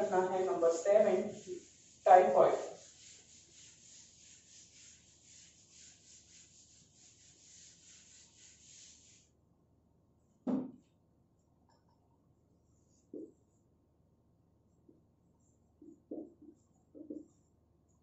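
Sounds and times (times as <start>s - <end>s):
eraser wiping whiteboard: 0.0s - 9.3s.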